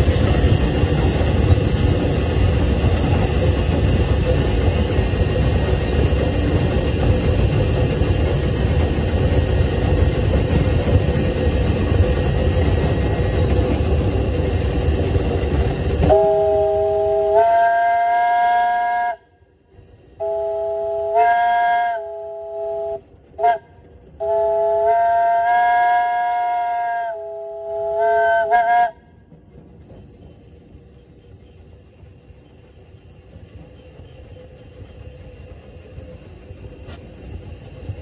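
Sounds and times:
loud rushing hiss: 0:00.0 - 0:17.4, 0:30.0 - 0:38.0
chime steam whistle blasts: 0:16.0 - 0:19.3, 0:20.2 - 0:23.6.

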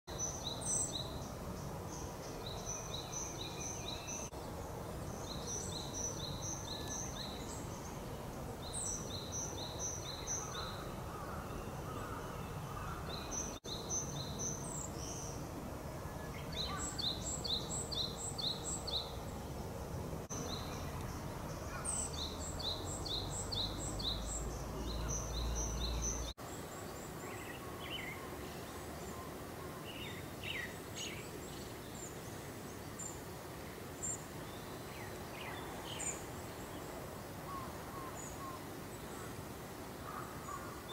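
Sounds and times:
background hiss: 0:00.1 - 0:40.9.

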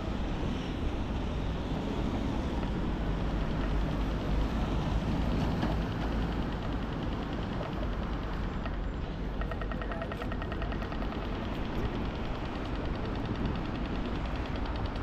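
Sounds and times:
passing traffic rumble: 0:00.0 - 0:15.0
faint rapid ticking: 0:02.6 - 0:15.0.

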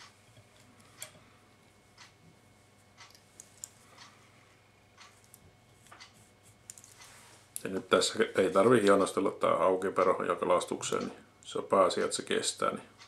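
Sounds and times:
faint rustles and ticks: 0:00.0 - 0:09.2.

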